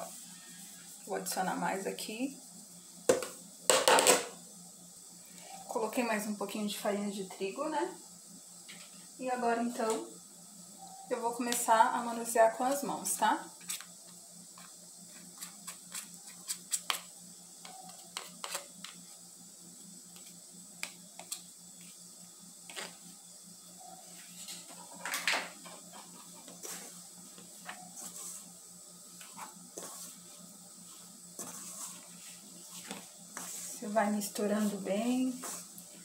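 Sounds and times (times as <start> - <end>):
faint steady hum: 0.0 - 36.0
spoon scraping a bowl: 17.7 - 19.0, 29.2 - 30.3, 31.4 - 33.8.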